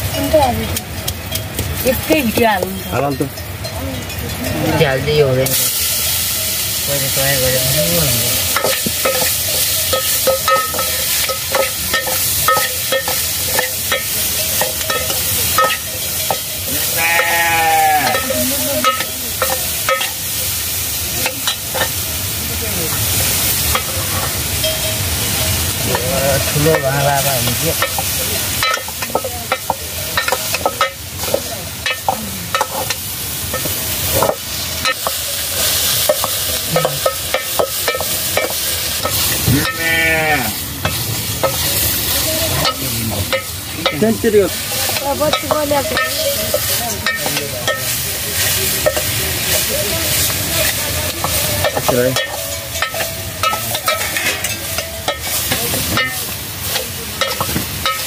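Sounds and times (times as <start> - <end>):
steady sizzle: 0.0 - 58.0
metal ladle clinking against pot: 8.4 - 20.2, 27.8 - 39.9, 50.2 - 58.0.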